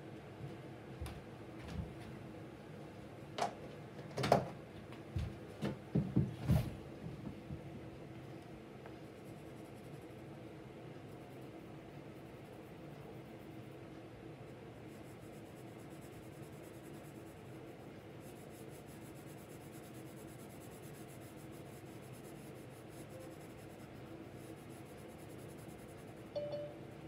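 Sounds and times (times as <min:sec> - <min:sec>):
faint steady hum: 0:00.0 - 0:27.0
pencil scratching on paper: 0:08.9 - 0:10.4, 0:11.0 - 0:13.8, 0:14.4 - 0:26.3.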